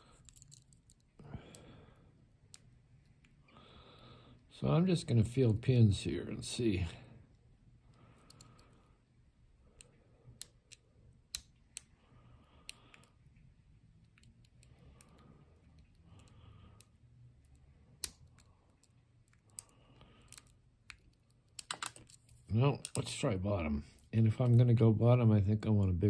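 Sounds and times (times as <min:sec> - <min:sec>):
faint metallic lock pick clicks: 0:00.2 - 0:01.1, 0:14.0 - 0:22.2.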